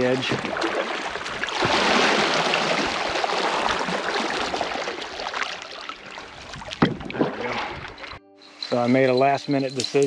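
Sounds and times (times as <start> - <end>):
river water rushing and splashing: 0.0 - 6.8.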